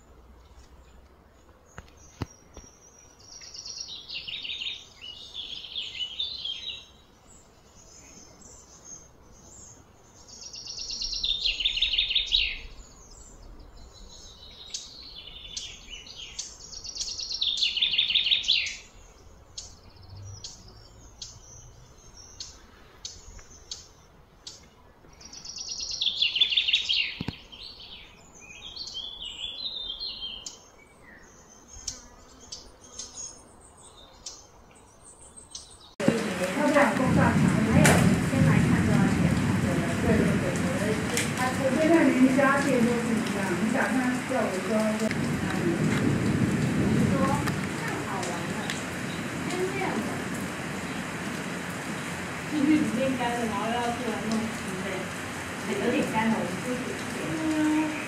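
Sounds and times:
songbird singing falling phrases: 0.6 - 58.0
soft bird chirps: 0.8 - 36.0.

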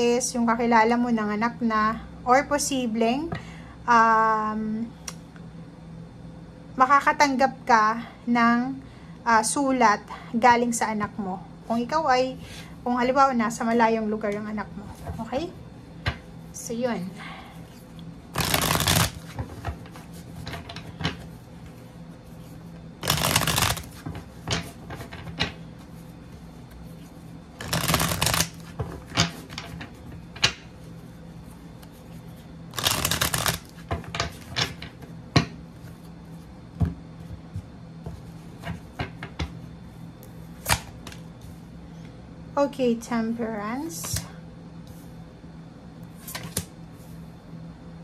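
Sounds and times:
cards riffle-shuffled: 18.3 - 20.1, 23.0 - 24.2, 27.6 - 28.9, 32.7 - 34.5
deck of cards tapping: 18.4 - 19.8, 23.0 - 24.6, 27.6 - 28.9, 32.7 - 34.0.

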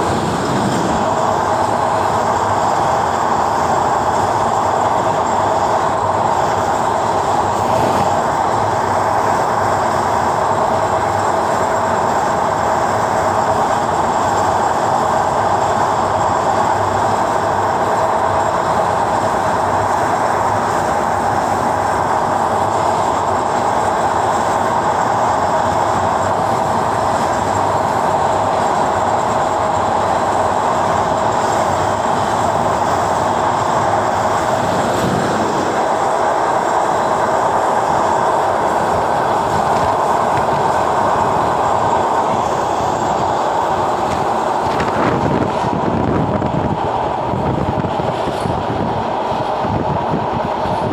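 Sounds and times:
train wheels rumbling on rails: 0.0 - 50.9.

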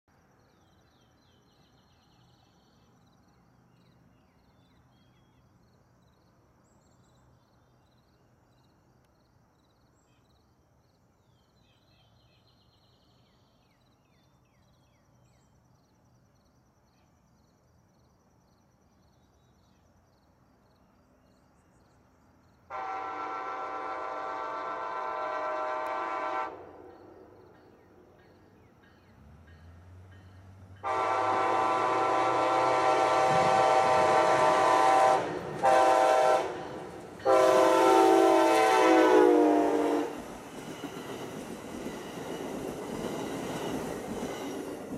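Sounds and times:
train horn blowing: 22.7 - 27.2, 30.8 - 40.2.

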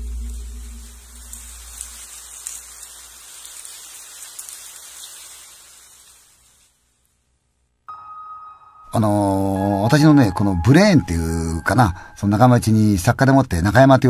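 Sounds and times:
rain patter: 0.0 - 7.2.

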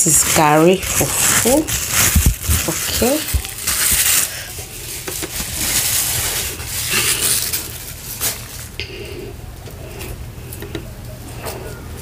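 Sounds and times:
plastic wrap crinkling: 0.0 - 8.8.

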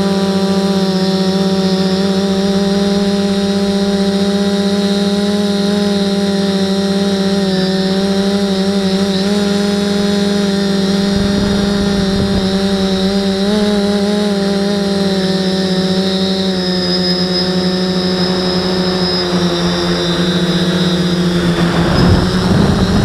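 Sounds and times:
drone motors and propellers humming: 0.0 - 23.0
low rumble: 21.4 - 23.0.

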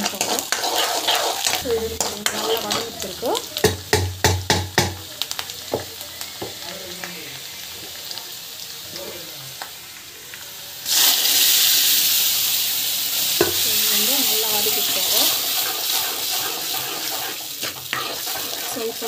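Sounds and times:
ladle clacking and scraping pan: 0.0 - 4.9, 14.7 - 19.0
loud sizzle of leaves in oil: 0.0 - 19.0
oil sizzling: 0.0 - 19.0.

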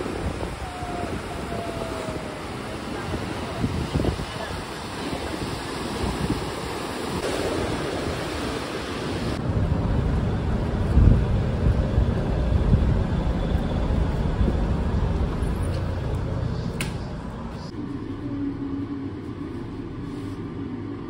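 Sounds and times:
ocean surf washing: 0.0 - 17.7
wind: 0.0 - 21.0
low uneven rumble: 9.4 - 21.0.

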